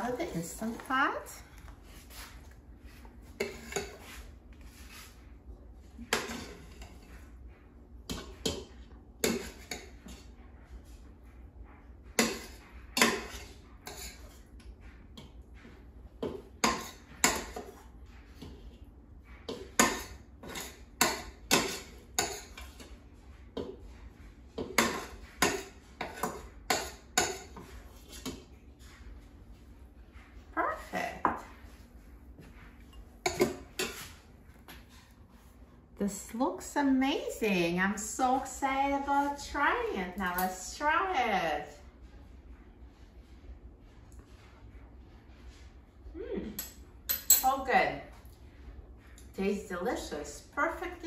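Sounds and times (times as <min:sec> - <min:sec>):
metal spoon scraping a pot: 0:12.2 - 0:14.4, 0:19.5 - 0:22.9.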